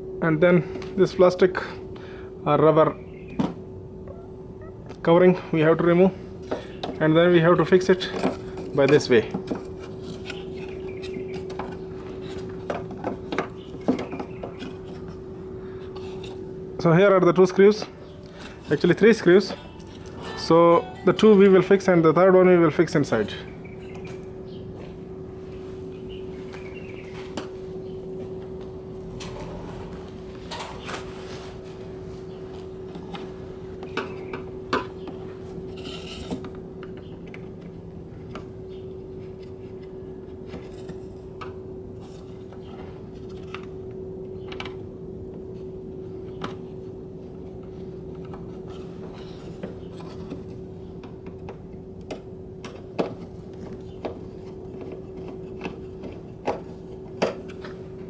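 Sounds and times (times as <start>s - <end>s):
low hum: 23.4s - 58.0s.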